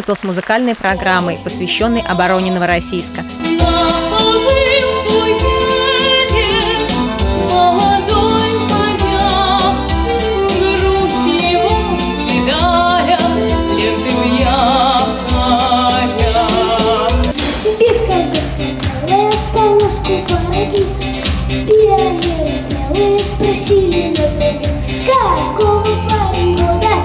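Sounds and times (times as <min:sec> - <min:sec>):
instrumental music with steady beat: 0:00.9 - 0:27.0
woman singing with vibrato: 0:03.3 - 0:17.9.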